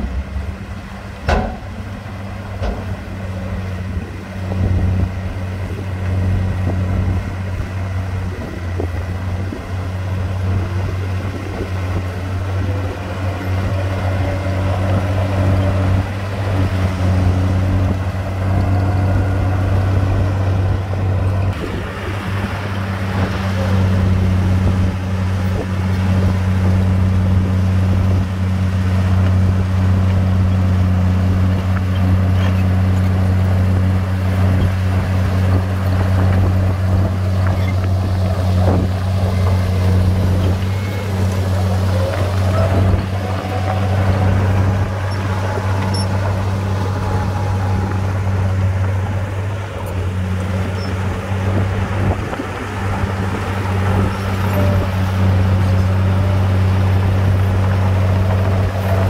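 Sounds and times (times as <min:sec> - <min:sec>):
rough broad noise: 0:00.0 - 0:04.7, 0:35.4 - 0:59.0
bulldozer diesel engine droning: 0:00.0 - 0:59.0.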